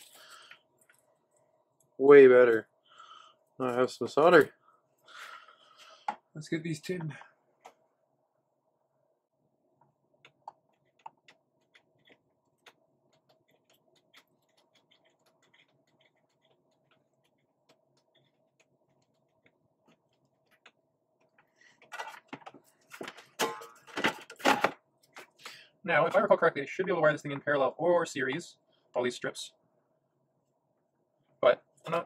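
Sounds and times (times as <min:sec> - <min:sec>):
faint steady hum: 0:00.0 - 0:32.0
fixture and cables rustling and clattering: 0:19.8 - 0:25.4.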